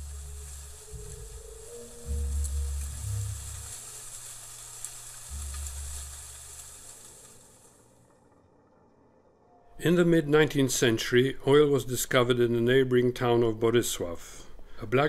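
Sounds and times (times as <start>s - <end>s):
deep low rumble: 0.0s - 3.8s, 5.3s - 6.6s
crackling film surface noise: 0.0s - 14.2s.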